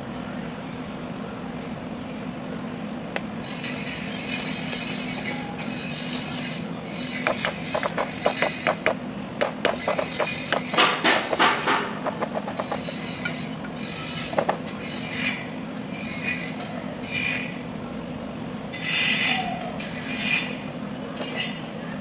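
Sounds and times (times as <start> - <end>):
steady low hum: 3.0 - 15.8
scraping and handling metal parts: 7.0 - 15.0
hammer striking wooden block: 7.2 - 13.4, 14.3 - 14.6.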